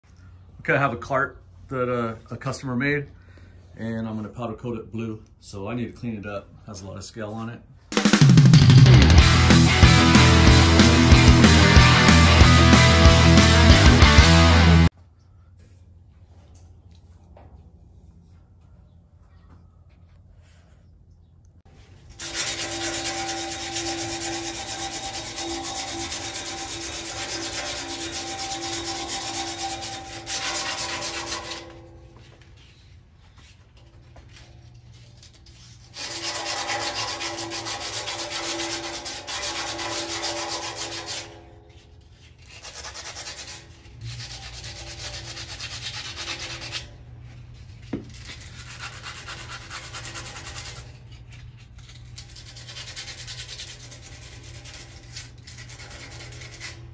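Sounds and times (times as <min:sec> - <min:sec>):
abrasive cloth rubbing steel tubing: 0:21.7 - 0:56.9.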